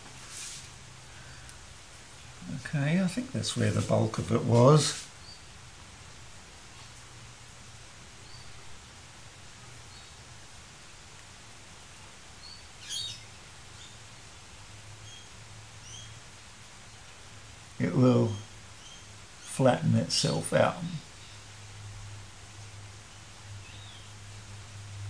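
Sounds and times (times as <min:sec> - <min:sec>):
low steady hum: 0:00.0 - 0:25.0
faint bird chirps: 0:12.4 - 0:14.0, 0:15.0 - 0:16.2.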